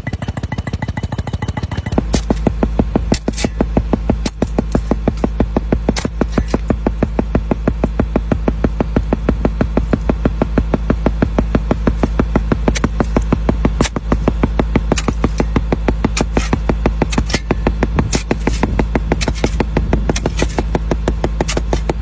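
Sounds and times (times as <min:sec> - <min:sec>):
metallic clanks: 0:00.0 - 0:06.8
excavator engine knocking: 0:00.0 - 0:22.0.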